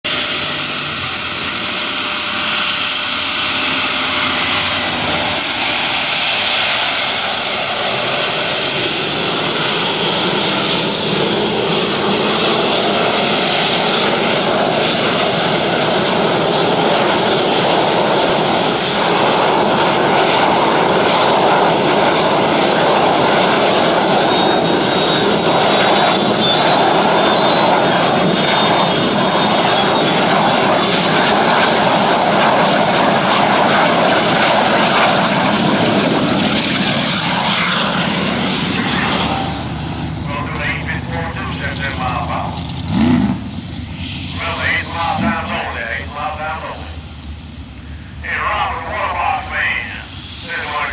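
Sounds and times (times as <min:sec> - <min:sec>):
turbine engine whine: 0:00.0 - 0:50.9
steady rushing noise: 0:10.9 - 0:50.9.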